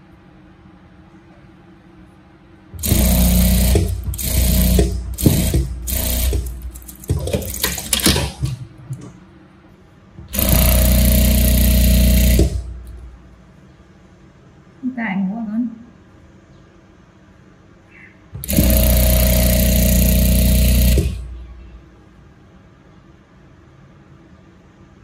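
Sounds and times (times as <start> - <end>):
sewing machine stitching: 2.8 - 8.6, 10.2 - 13.1, 18.4 - 21.5.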